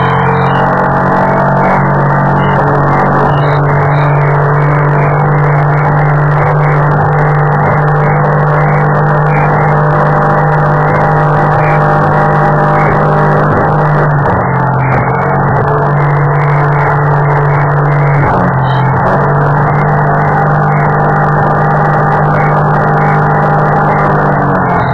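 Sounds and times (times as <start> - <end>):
powerboat engine drone: 0.0 - 24.9.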